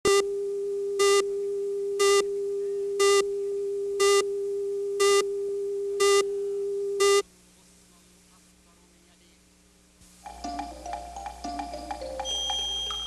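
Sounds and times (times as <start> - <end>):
countdown beeps: 3.0 - 3.2, 7.0 - 7.2, 10.3 - 13.0
steady mid-pitched tone: 10.2 - 13.0.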